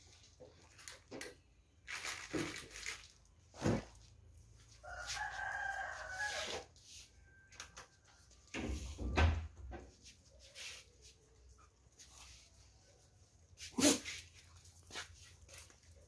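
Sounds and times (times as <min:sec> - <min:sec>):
rooster crowing: 0:04.7 - 0:08.2.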